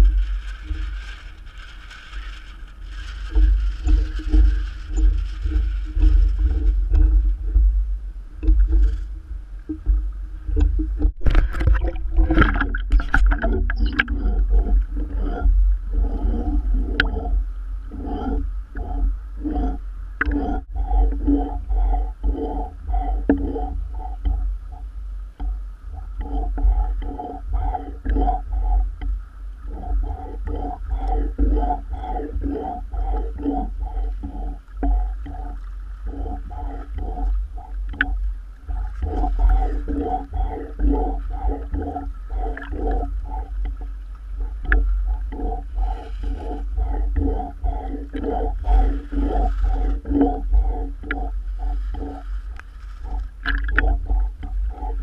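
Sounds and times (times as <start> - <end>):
low rumble: 0.0 - 55.0
rapid hollow pulses: 0.0 - 55.0
waves slapping against camera: 0.0 - 55.0.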